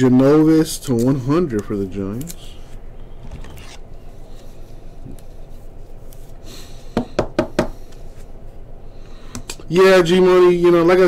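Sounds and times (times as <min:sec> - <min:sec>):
cards rustling: 0:00.9 - 0:06.4.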